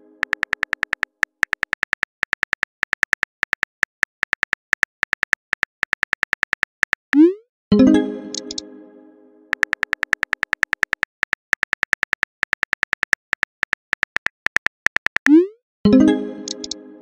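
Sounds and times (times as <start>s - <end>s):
phone keyboard clicks: 0.2s - 7.0s, 8.3s - 8.6s, 9.5s - 15.3s, 16.4s - 16.8s.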